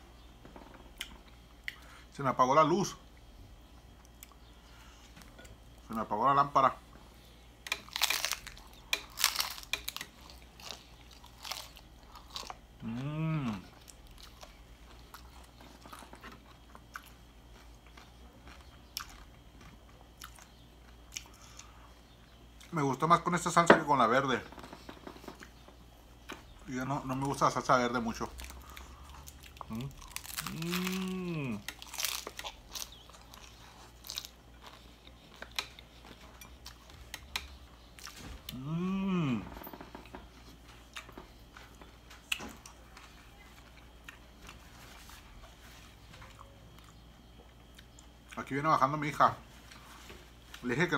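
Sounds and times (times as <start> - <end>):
person chewing crunchy food: 7.5 - 22.8, 28.0 - 48.4
person humming: 12.8 - 13.8, 29.7 - 31.7, 38.5 - 39.6.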